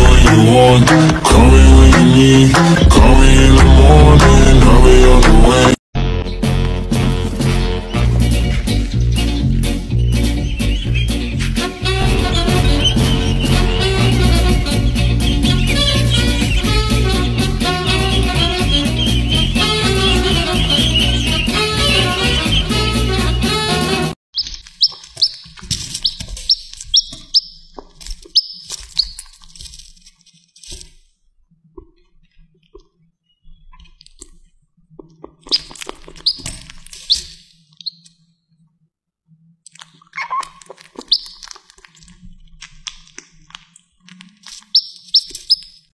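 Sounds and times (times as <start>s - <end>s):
chick peeping: 7.8s - 29.4s, 35.2s - 38.2s, 40.1s - 41.8s, 44.5s - 45.9s.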